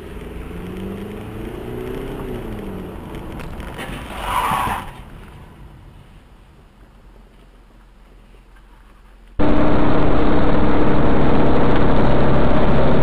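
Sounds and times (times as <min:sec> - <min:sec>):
vehicle engine running: 0:09.4 - 0:13.0.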